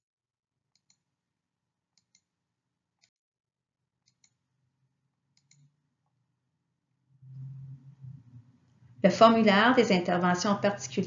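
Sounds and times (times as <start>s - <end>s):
soft clicks: 5.4s - 5.7s.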